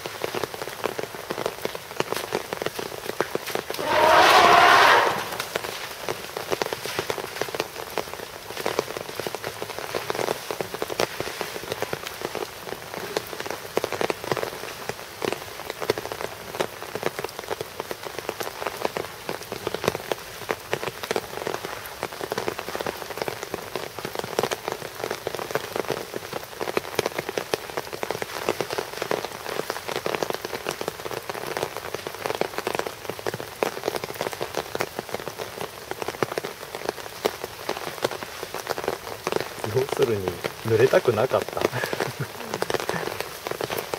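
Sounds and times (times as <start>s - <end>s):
sharp raindrop hits: 0.0s - 16.1s, 35.9s - 43.9s
steady rain falling: 0.0s - 43.9s.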